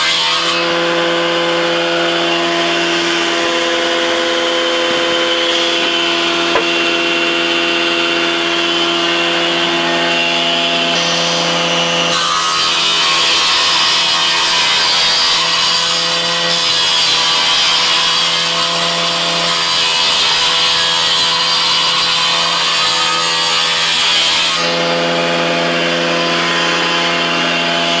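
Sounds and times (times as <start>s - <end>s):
electric saw running: 0.0s - 28.0s
saw cutting wooden board: 0.0s - 28.0s.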